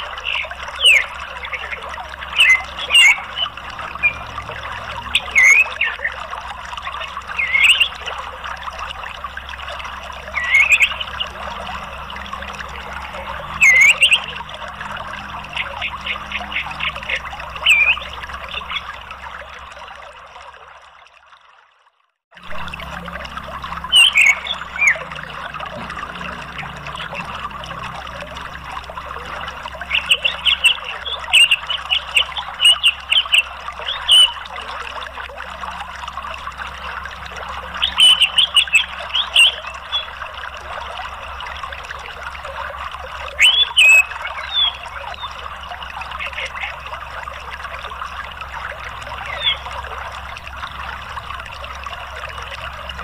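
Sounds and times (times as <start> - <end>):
running water: 0.0 - 53.0
short high chirping calls: 17.6 - 18.8.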